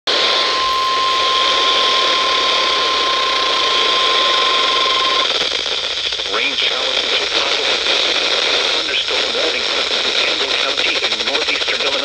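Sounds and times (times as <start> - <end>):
weather radio alarm tone: 0.1 - 5.6
radio static hiss: 0.1 - 12.0.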